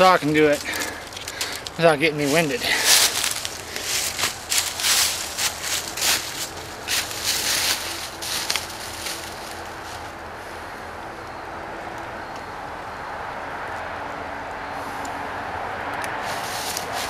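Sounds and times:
footsteps crunching dry leaves: 0.0 - 10.2, 16.2 - 17.0.

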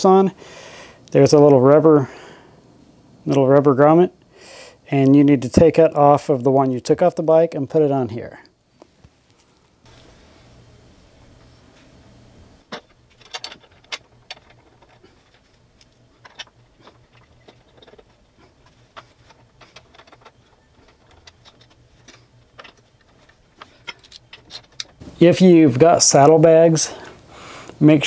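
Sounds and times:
hand tools clicking and knocking: 12.7 - 25.0.

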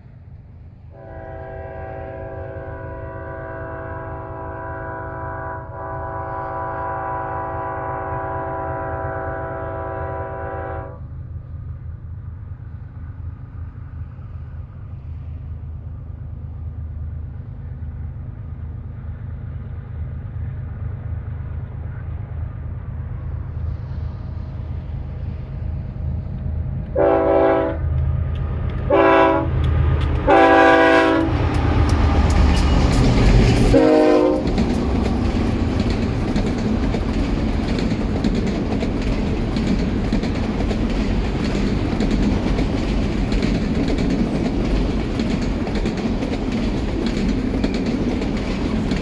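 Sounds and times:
locomotive engines rumbling: 0.0 - 49.0
train air horn blasts: 0.9 - 11.1, 26.9 - 27.9, 28.9 - 29.6, 30.2 - 34.6
train wheels clickety-clack: 23.4 - 49.0.

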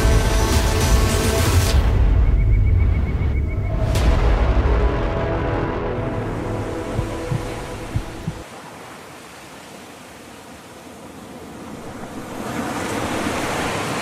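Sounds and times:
music: 0.0 - 3.1, 3.7 - 8.4.

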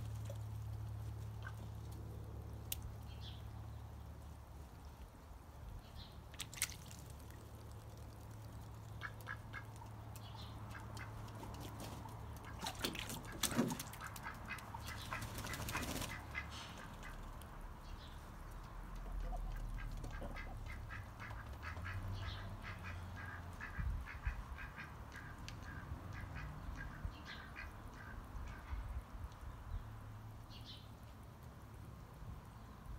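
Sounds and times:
splashing in water tub: 6.2 - 7.8, 11.0 - 16.4
ducks quacking: 12.0 - 17.3, 19.1 - 28.8.

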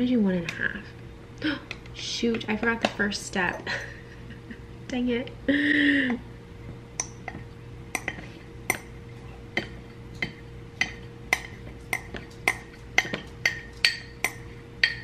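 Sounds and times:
faint steady hum: 0.0 - 15.0
ceramic bowl clinking on metal tin: 9.6 - 15.0.

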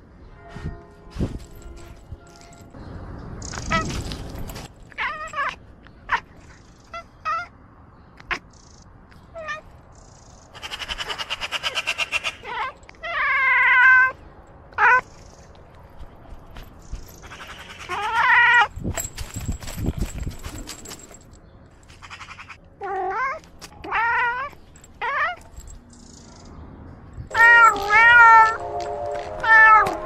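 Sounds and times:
cat meowing and chirping: 5.0 - 7.5, 14.8 - 15.4, 22.0 - 25.5, 27.3 - 28.6, 29.4 - 30.0.

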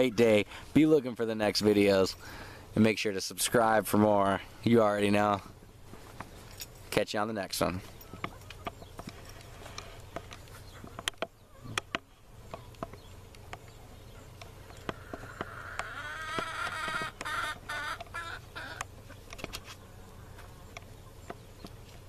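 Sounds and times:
rooster crowing: 15.3 - 18.8.

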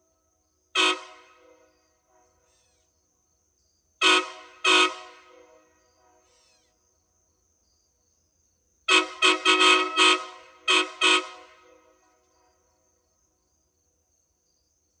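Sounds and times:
locomotive air horn blasts: 0.7 - 2.7, 4.0 - 6.7, 8.9 - 12.8.

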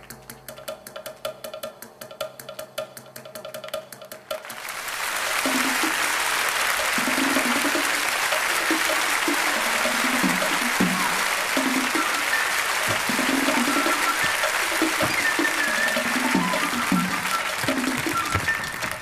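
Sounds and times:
music with sharp percussive beat: 0.0 - 19.0
crowd applauding and cheering: 4.4 - 19.0
people shouting: 10.5 - 11.5.

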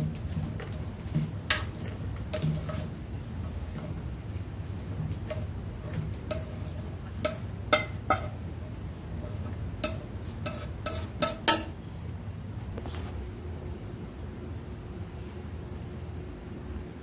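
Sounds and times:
steady low hum: 0.0 - 17.0
chopsticks clinking against pan: 5.2 - 8.4, 9.2 - 11.8.

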